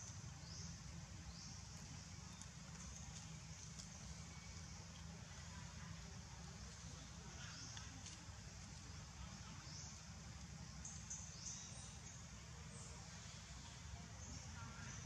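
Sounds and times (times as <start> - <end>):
faint clicks: 7.7 - 8.7.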